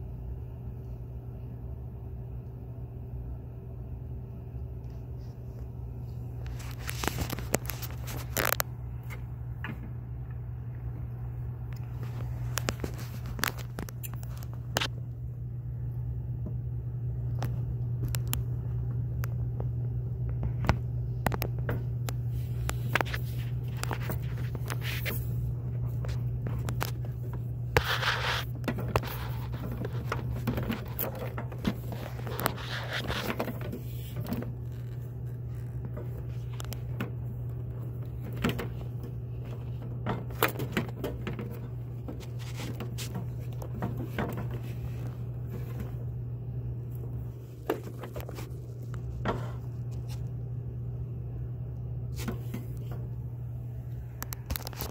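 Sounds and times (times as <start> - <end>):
coffee brewer electrical hum: 0.0 - 54.9
handling clicks and scrapes: 4.8 - 9.8, 11.7 - 15.0, 20.4 - 50.4, 53.8 - 54.9.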